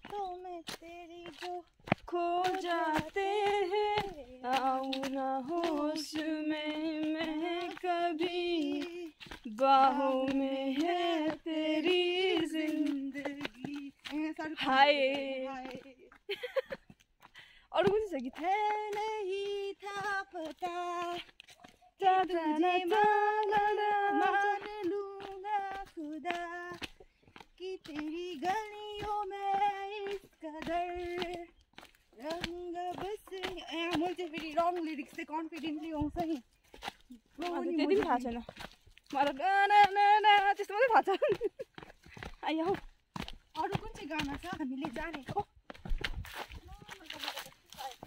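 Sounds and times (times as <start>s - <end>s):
woman singing long notes: 0.0s - 16.0s, 22.0s - 26.8s
woman singing unaccompanied: 0.0s - 16.7s, 17.7s - 41.5s, 42.1s - 45.5s.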